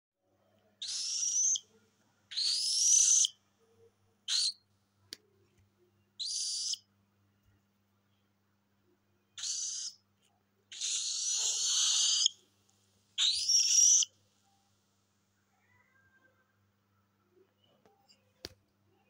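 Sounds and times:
cockatiel raspy calls: 0.8s - 1.6s, 2.3s - 3.3s, 4.3s - 4.6s, 6.2s - 6.8s, 9.4s - 10.0s, 10.7s - 12.4s, 13.2s - 14.1s.

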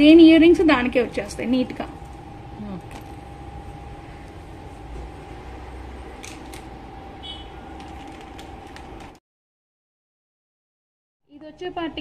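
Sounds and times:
low hum: 0.0s - 8.9s.

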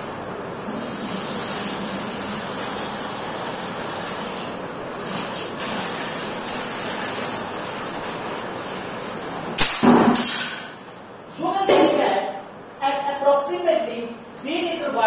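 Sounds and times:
water pouring into a bucket: 0.7s - 9.4s.

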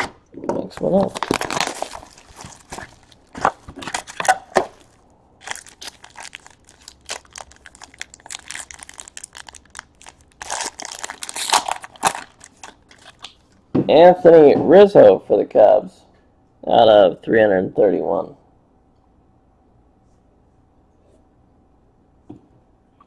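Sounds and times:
foil wrapper tearing and crinkling: 0.8s - 13.3s.

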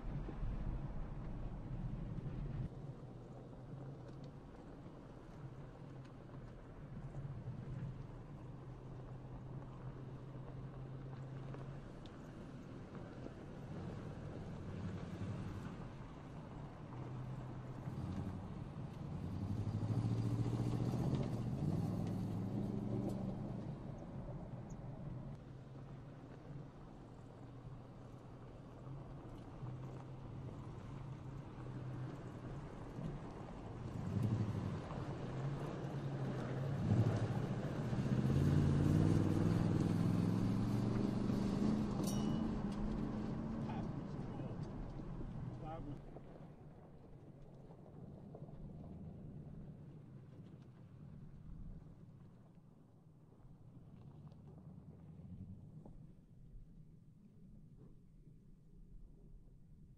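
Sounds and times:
pickup truck engine pulling hard: 16.9s - 23.8s, 31.6s - 46.0s.

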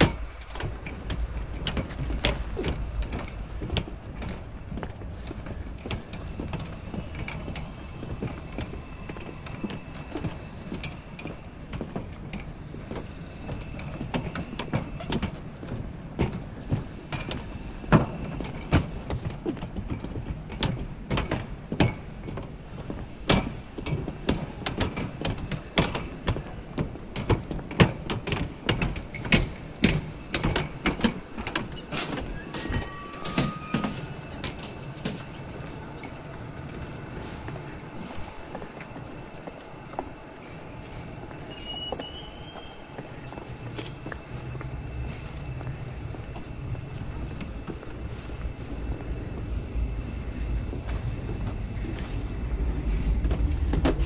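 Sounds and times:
low city rumble: 0.0s - 54.0s
footsteps on hard paving: 33.8s - 54.0s.

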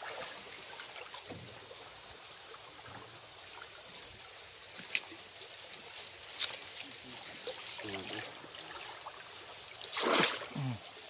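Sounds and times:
feet wading through water: 0.0s - 1.4s, 5.1s - 11.0s
stream running over rocks: 0.0s - 11.0s.

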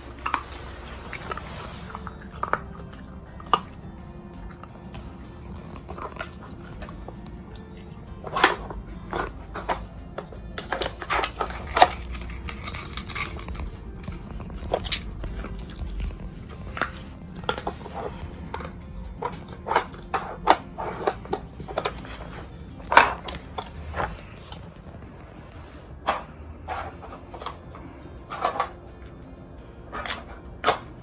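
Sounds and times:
dog chewing: 0.0s - 25.4s
plastic blocks clicking: 7.8s - 15.2s.

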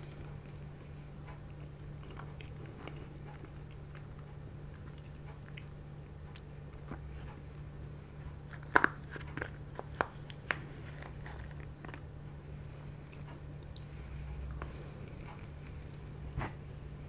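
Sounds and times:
chewing and mouth sounds: 0.0s - 7.6s, 12.8s - 16.2s.

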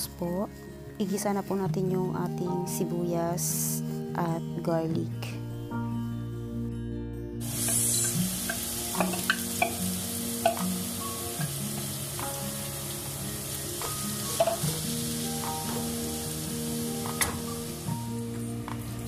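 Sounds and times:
onion sizzling in oil: 7.4s - 19.0s.

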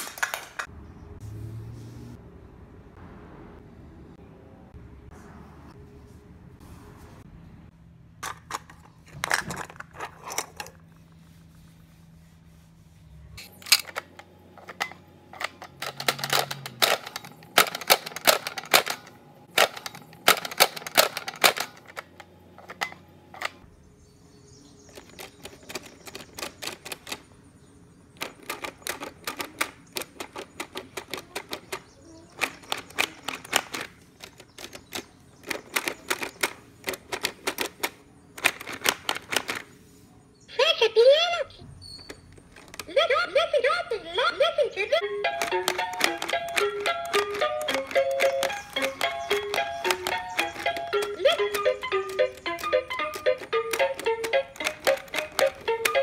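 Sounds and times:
plastic toys clicking and clattering: 0.0s - 0.7s, 8.2s - 11.0s, 13.4s - 23.6s, 24.9s - 27.3s, 28.2s - 39.8s, 42.0s - 43.6s, 45.2s - 56.0s.

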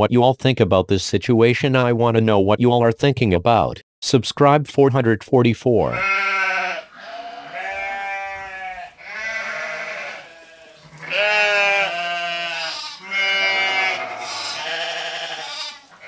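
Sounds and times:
sheep-like bleating: 5.9s - 16.0s.

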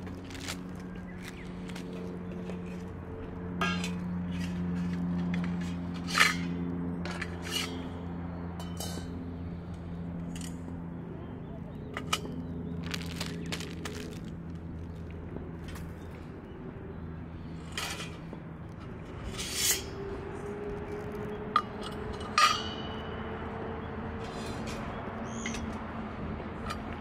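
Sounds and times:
metal camping gear clinking: 11.9s - 14.6s.

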